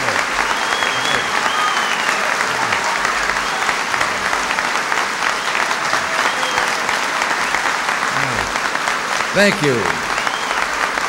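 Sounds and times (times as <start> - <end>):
crowd applauding: 0.0 - 11.0.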